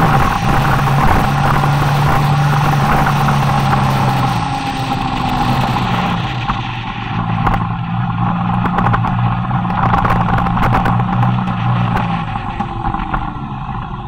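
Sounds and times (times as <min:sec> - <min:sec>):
motorcycle engine running: 0:00.0 - 0:14.0
wind buffeting microphone: 0:00.0 - 0:14.0.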